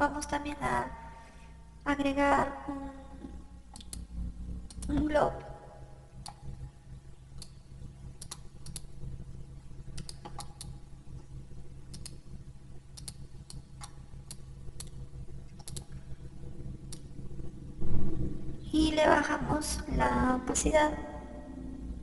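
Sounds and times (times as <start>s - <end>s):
steady low hum: 0.0s - 22.0s
mouse and keyboard clicks: 10.0s - 10.7s, 13.0s - 15.9s.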